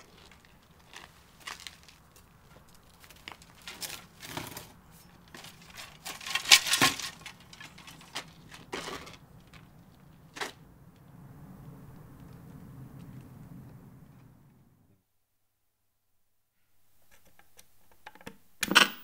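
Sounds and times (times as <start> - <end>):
objects rustling and clinking: 0.0 - 9.7.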